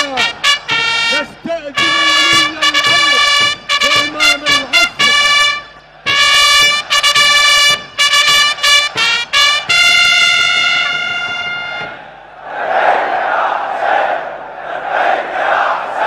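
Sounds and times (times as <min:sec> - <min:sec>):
brass bugle call: 0:00.0 - 0:12.0.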